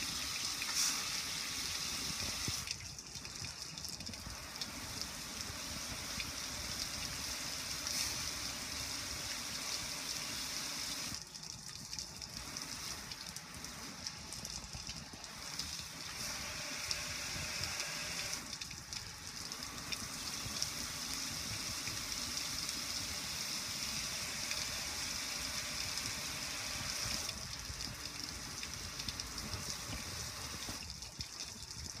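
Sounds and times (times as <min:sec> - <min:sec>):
hose spraying onto metal grill: 0:00.0 - 0:02.7, 0:04.2 - 0:11.2, 0:12.3 - 0:30.9
water running off: 0:00.0 - 0:32.0.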